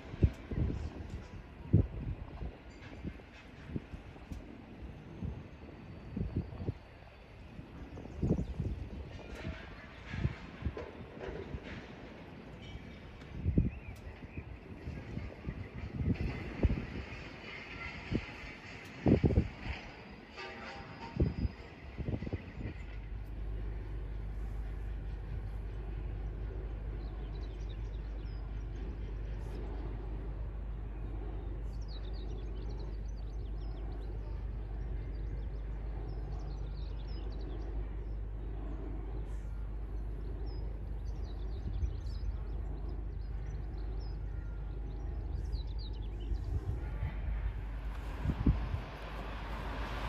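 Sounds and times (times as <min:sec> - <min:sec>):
wind turbine blades swishing: 0:00.0 - 0:50.0
low rumble: 0:21.4 - 0:50.0.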